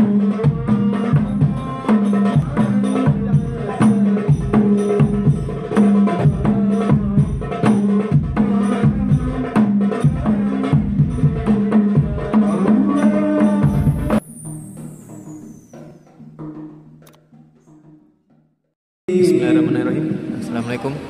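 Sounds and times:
bass drum beats: 0:00.0 - 0:14.4
frame drums playing: 0:00.0 - 0:18.5.

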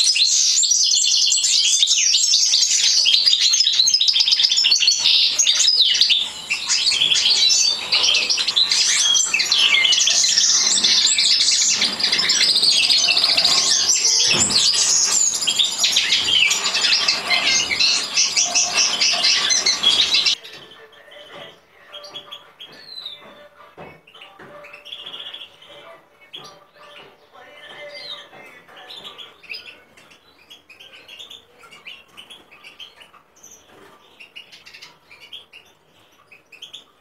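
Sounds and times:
finches twittering: 0:04.0 - 0:20.4.

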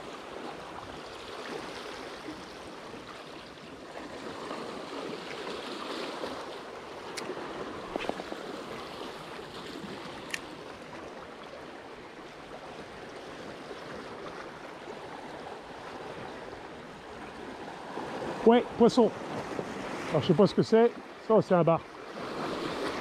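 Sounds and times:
small waves lapping over rocks: 0:00.0 - 0:23.0.

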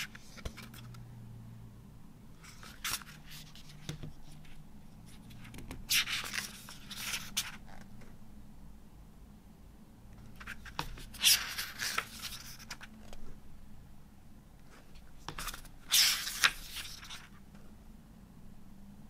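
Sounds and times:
book pages turning: 0:00.0 - 0:01.0, 0:02.4 - 0:07.9, 0:10.2 - 0:13.3, 0:14.7 - 0:17.4.

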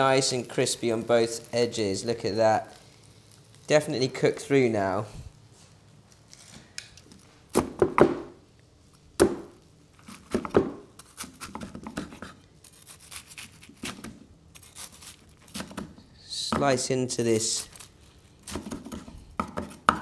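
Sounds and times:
crispy crust crunching: 0:12.2 - 0:15.8.

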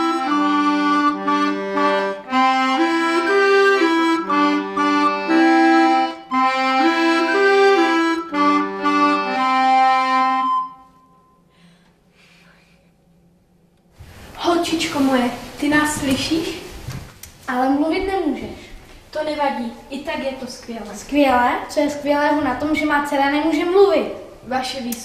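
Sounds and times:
piano accordion: 0:00.0 - 0:10.9
clarinet playing melody: 0:00.0 - 0:11.2.

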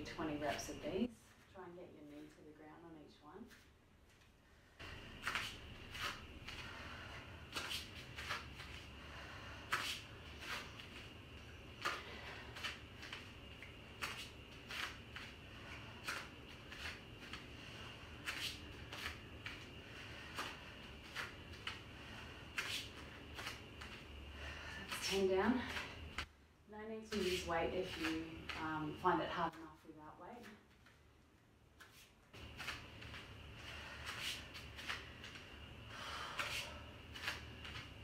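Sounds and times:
woman breathing: 0:04.5 - 0:26.3, 0:33.0 - 0:38.0.

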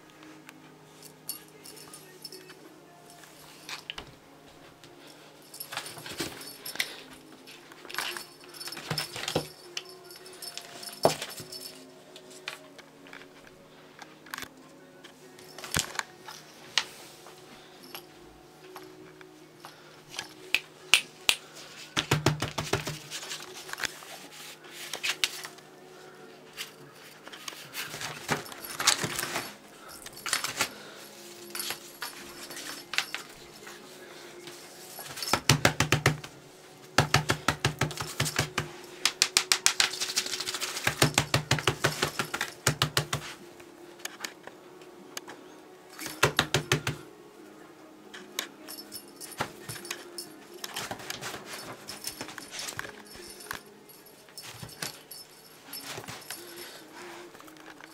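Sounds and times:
rapid clicking and rattling of toy: 0:22.0 - 0:24.0, 0:37.0 - 0:43.4.

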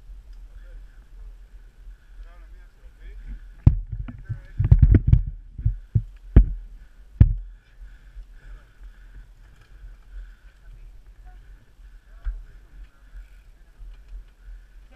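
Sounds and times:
bike rolling on dirt trail: 0:02.9 - 0:14.9.

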